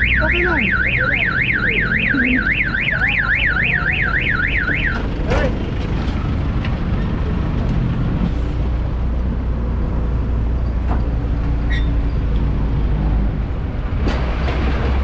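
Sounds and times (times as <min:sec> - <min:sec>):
road rumble: 0:00.0 - 0:15.0
truck engine droning: 0:00.0 - 0:15.0.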